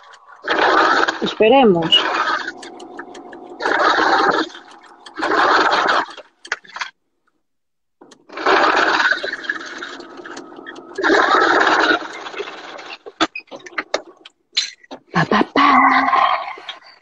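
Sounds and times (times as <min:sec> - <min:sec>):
sewing machine stitching: 0:08.0 - 0:13.9.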